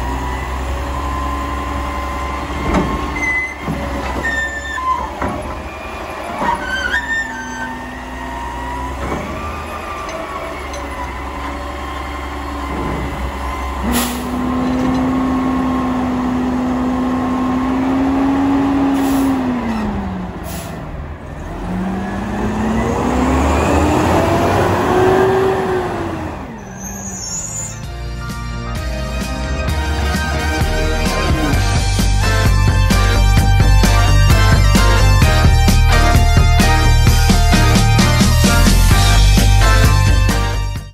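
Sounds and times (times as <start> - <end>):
garbage truck engine running: 0.0 - 40.9
hydraulic arm working: 0.4 - 16.2.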